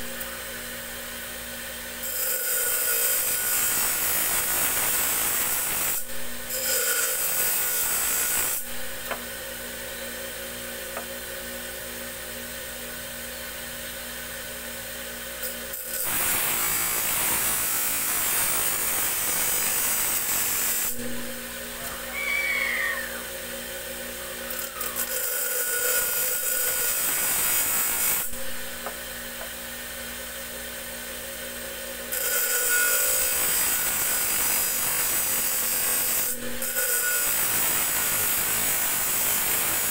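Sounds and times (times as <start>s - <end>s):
blade grinding on wheel: 24.5s - 27.3s.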